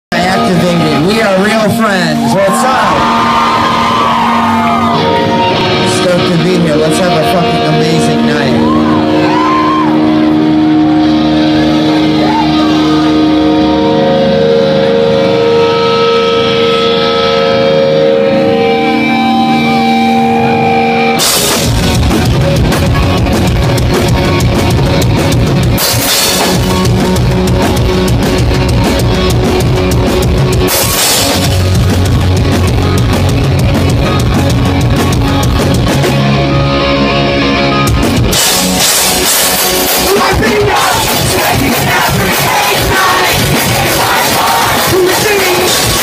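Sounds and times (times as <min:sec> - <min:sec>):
bass guitar: 0:00.0 - 0:46.0
distorted guitars: 0:00.1 - 0:46.0
held guitar notes ringing: 0:09.9 - 0:44.0
drum kit: 0:18.7 - 0:36.8, 0:37.5 - 0:46.0.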